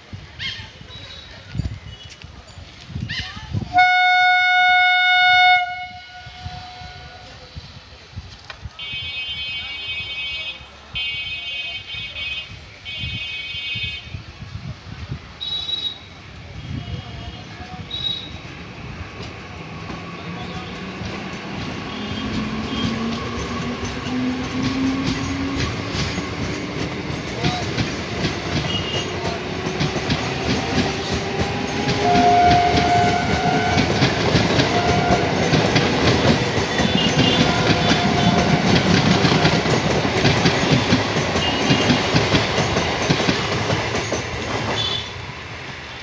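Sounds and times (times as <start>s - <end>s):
train wheels clattering: 17.9s - 45.9s.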